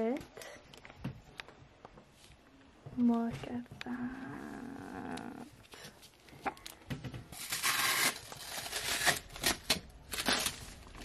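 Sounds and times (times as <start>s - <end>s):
protective wrap rustling: 5.7s - 11.0s.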